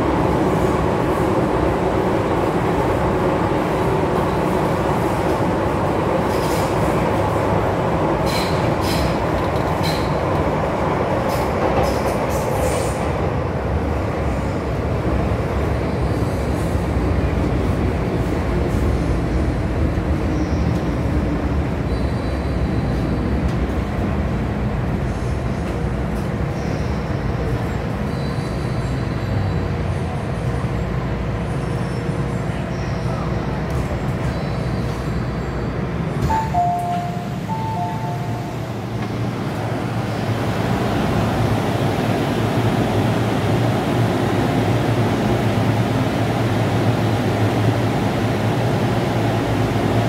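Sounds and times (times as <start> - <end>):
train wheels rumbling: 0.0 - 28.0.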